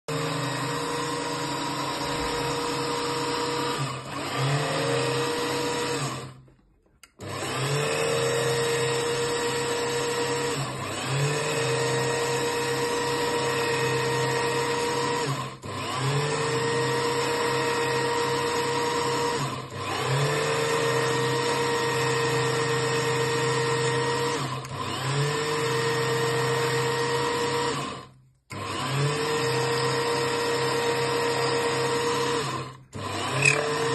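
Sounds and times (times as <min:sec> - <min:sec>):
small lathe whining: 0:00.1 - 0:06.4, 0:07.1 - 0:33.9.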